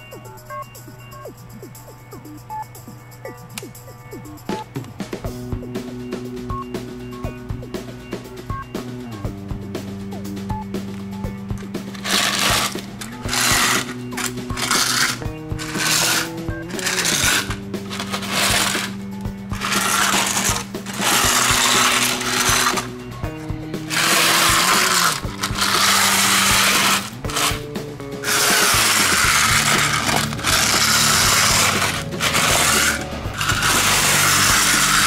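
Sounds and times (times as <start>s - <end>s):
background music with held notes: 0.0s - 35.0s
toy cars crunching through gravel: 12.0s - 19.0s, 19.6s - 22.9s, 23.8s - 27.6s, 28.2s - 35.0s.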